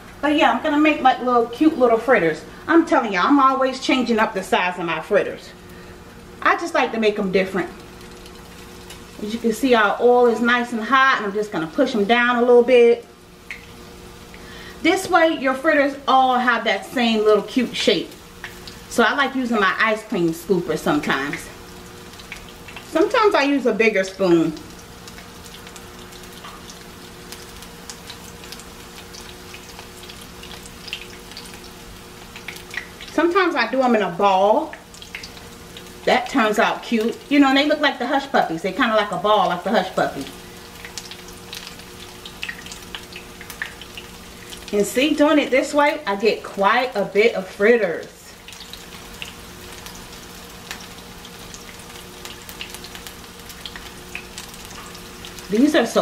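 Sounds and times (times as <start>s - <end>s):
frying in hot oil: 0.0s - 56.0s
oil popping and crackling: 7.0s - 12.4s, 13.1s - 15.9s, 16.7s - 56.0s.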